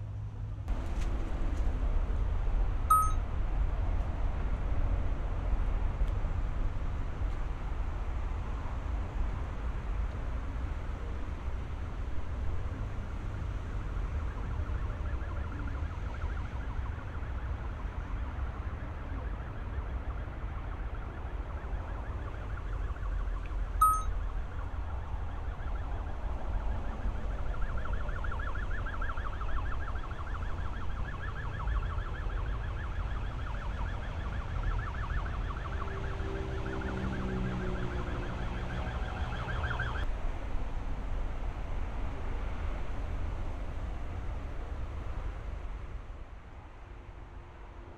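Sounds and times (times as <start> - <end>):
warbling siren-like alarm tone: 2.9 - 3.2, 22.0 - 24.2, 34.7 - 40.0.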